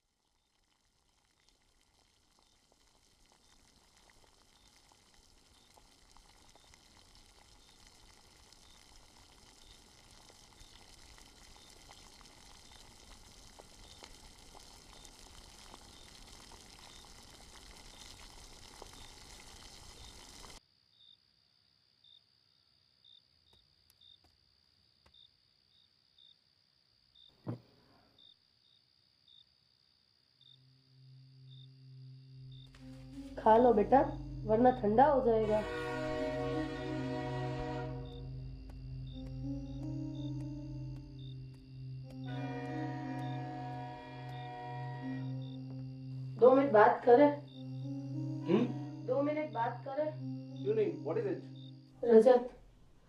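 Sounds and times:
crickets chirping: 2.3 - 52.6
faint high whine: 30.5 - 52.6
hiss-like noise swell: 35.4 - 40.2.

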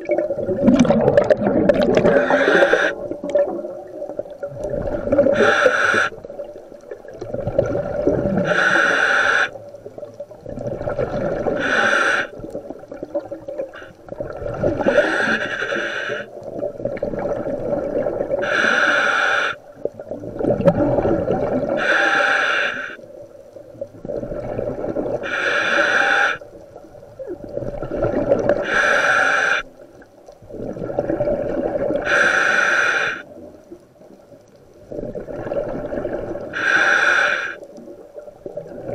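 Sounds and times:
exhaled bubbles rushing: 0.0 - 5.5, 6.1 - 8.5, 9.6 - 11.6, 12.2 - 15.1, 16.3 - 18.4, 19.8 - 21.8, 23.6 - 25.2, 27.2 - 28.7, 30.4 - 32.1, 34.9 - 36.6, 37.6 - 38.9
regulator inhale hiss: 2.1 - 3.0, 5.3 - 6.2, 8.4 - 9.6, 11.6 - 12.4, 14.8 - 16.4, 18.4 - 19.6, 21.8 - 23.0, 25.2 - 26.6, 28.6 - 29.8, 32.0 - 33.4, 36.5 - 37.6.

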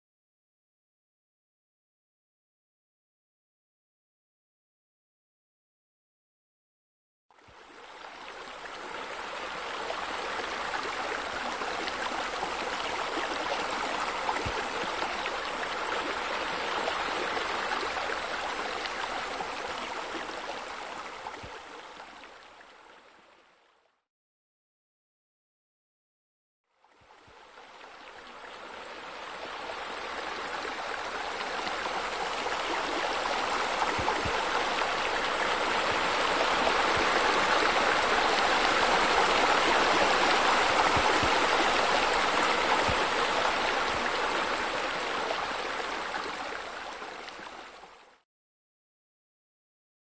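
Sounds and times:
fountain water splashing: 27.6 - 47.6.

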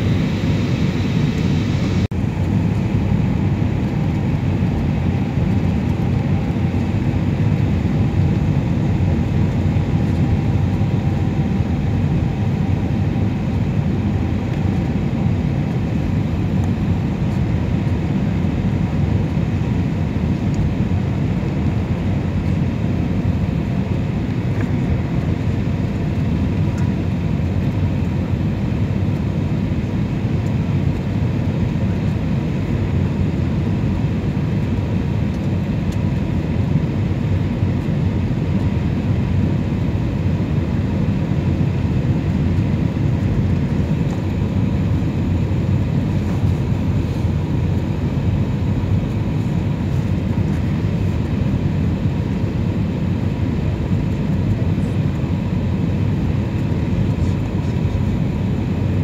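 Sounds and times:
faint high hum: 0.0 - 19.5
jet engine and airflow rumble: 0.0 - 59.0.

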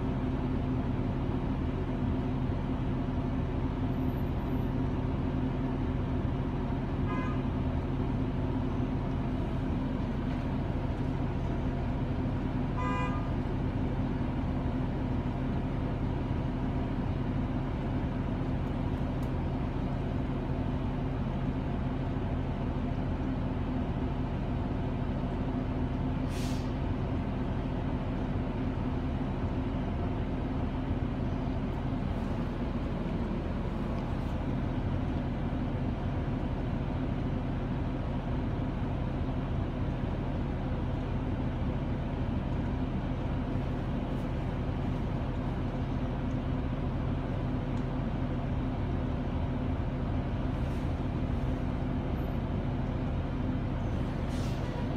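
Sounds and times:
bus engine low hum: 0.0 - 54.9.

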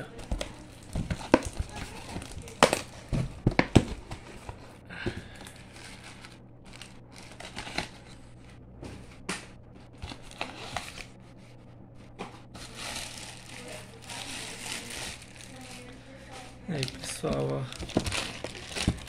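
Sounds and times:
paper and plastic bags crinkling: 0.0 - 8.2, 10.0 - 11.1, 12.4 - 19.0.

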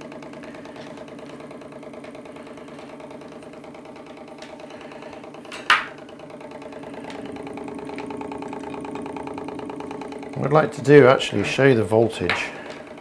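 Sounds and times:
engine pistons beating: 0.0 - 13.0.

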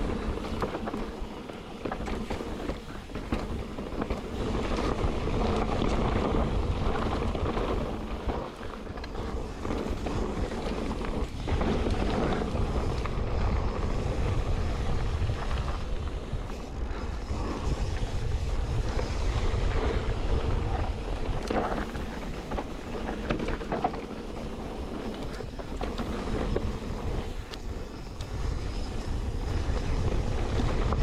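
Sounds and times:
bike clattering over bumps: 0.0 - 31.0
bike tyre rumble: 0.0 - 31.0
wind buffeting microphone: 0.0 - 31.0.

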